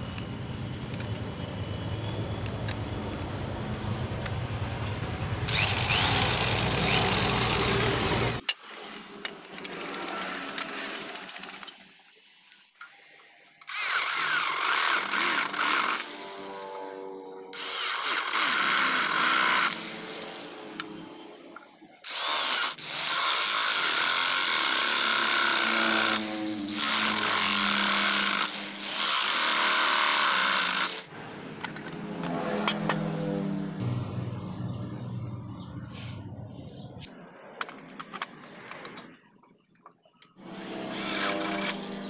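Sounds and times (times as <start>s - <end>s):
electric drill boring wood: 5.5s - 8.4s, 13.6s - 16.8s, 17.5s - 20.9s, 22.0s - 31.1s, 40.4s - 42.0s.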